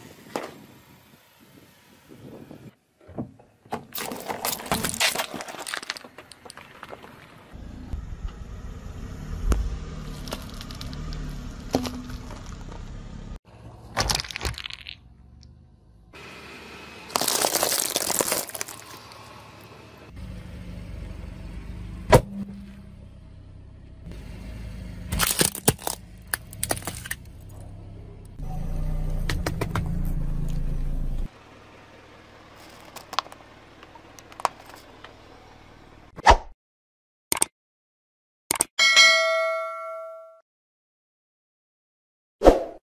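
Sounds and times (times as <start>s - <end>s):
low car rumble: 0.0s - 36.2s
tyre crunching plastic objects: 3.9s - 7.2s, 10.1s - 12.8s, 13.9s - 15.0s, 17.1s - 19.4s, 25.2s - 27.3s, 32.6s - 33.4s.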